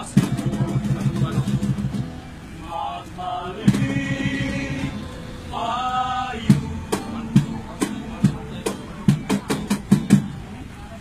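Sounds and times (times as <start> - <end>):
men singing carols together: 0.0 - 8.9
sharp percussive hits: 6.4 - 10.4.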